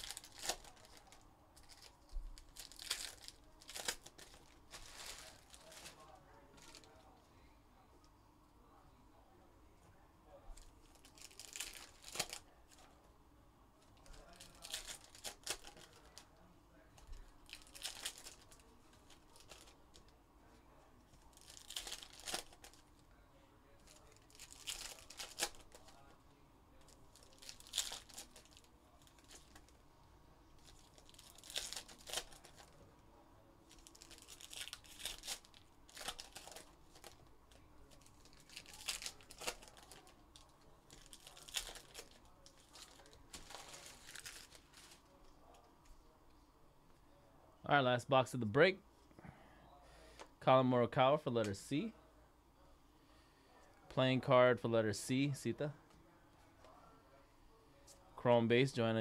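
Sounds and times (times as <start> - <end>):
card wrappers tearing and crinkling: 0.0 - 6.9, 10.8 - 12.5, 14.1 - 16.3, 17.4 - 19.8, 21.3 - 22.8, 23.8 - 26.1, 26.8 - 29.7, 30.6 - 32.8, 33.7 - 45.0.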